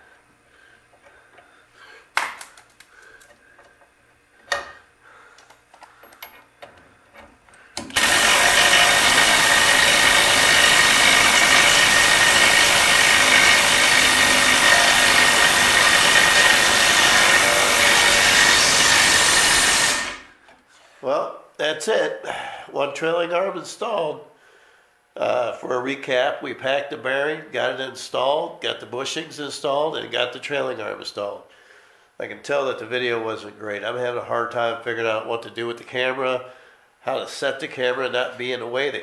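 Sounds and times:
cordless drill running: 0:07.8 - 0:20.4.

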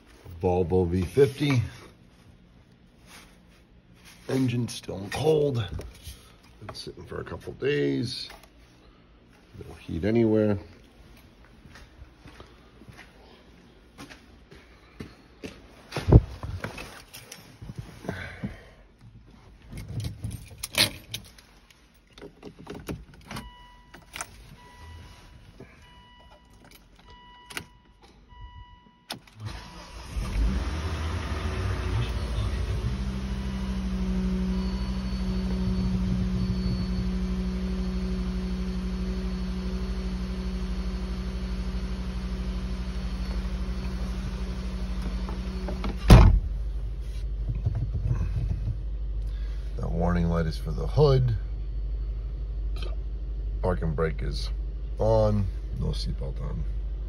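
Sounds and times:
car engine cranking and idling: 0:18.0 - 0:57.0
dashboard warning chime beeps: 0:23.3 - 0:29.2, 0:33.5 - 0:41.6.

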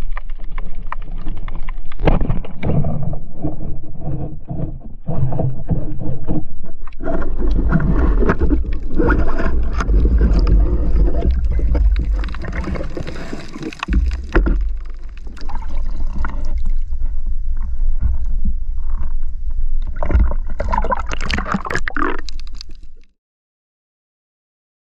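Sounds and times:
water churning and gurgling: 0:00.0 - 0:23.1
splashing: 0:07.0 - 0:17.2, 0:19.8 - 0:23.0.

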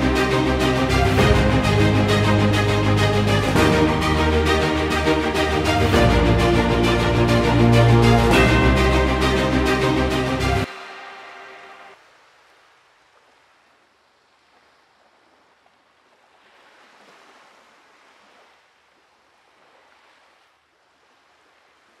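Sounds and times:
ocean surf: 0:00.0 - 0:18.6
music note: 0:03.4 - 0:11.8.

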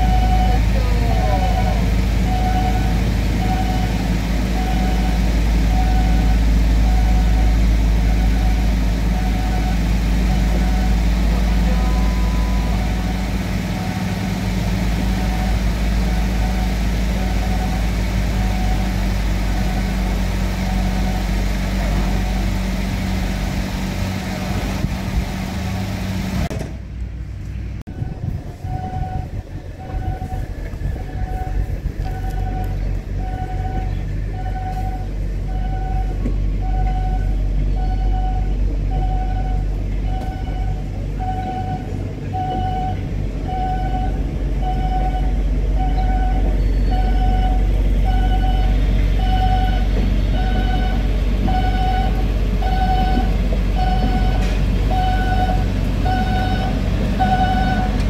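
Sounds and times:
low engine hum: 0:00.0 - 0:58.0
railroad crossing bell dinging: 0:05.8 - 0:14.2, 0:31.1 - 0:58.0.

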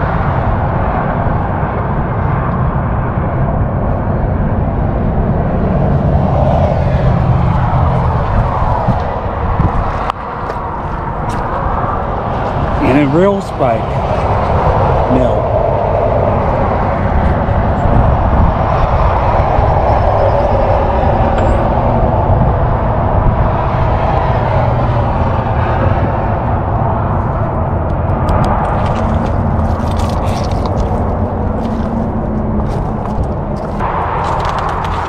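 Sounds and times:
low rumble: 0:00.0 - 0:13.2, 0:13.8 - 0:35.0
loud mechanical drone: 0:00.0 - 0:35.0
footsteps crunching on gravel: 0:07.9 - 0:11.7, 0:28.7 - 0:35.0.

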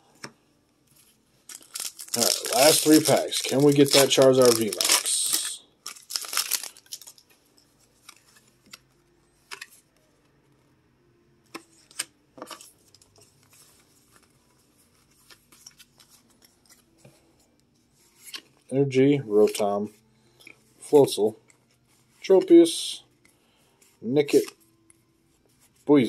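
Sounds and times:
cards being handled: 0:00.9 - 0:09.9, 0:11.5 - 0:17.2, 0:19.3 - 0:19.8, 0:24.3 - 0:24.6
wrapper crinkling: 0:01.4 - 0:07.3
foil wrapper tearing: 0:01.5 - 0:07.2.

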